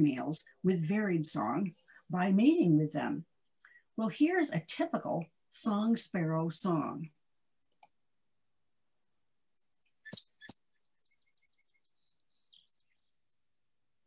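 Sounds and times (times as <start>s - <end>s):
sparrow singing: 10.1s - 13.2s.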